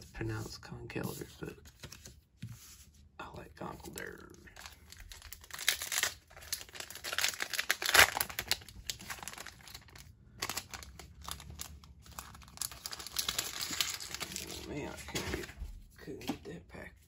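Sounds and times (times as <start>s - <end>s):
foil wrapper crinkling and tearing: 4.6s - 14.7s.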